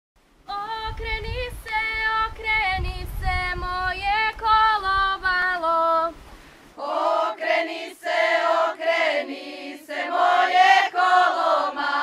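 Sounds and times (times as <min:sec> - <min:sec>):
women singing unaccompanied: 0:00.5 - 0:12.0.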